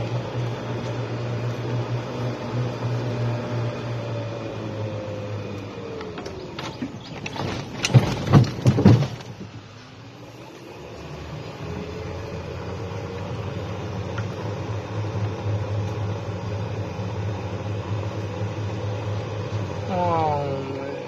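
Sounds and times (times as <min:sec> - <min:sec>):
golf cart motor whine: 0:00.0 - 0:07.9, 0:09.4 - 0:21.0
knocks and thumps: 0:06.5 - 0:09.6.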